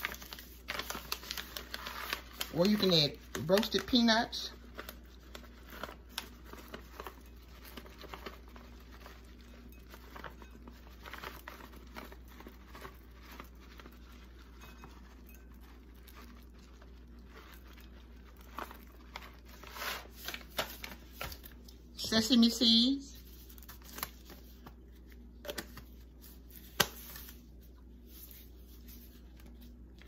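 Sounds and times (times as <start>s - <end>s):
plastic bag crinkling: 0.0s - 22.5s.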